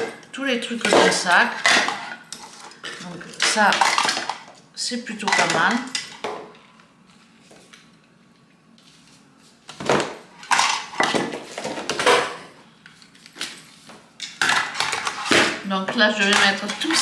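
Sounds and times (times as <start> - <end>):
plastic attachments clattering on wood: 14.2 - 17.0.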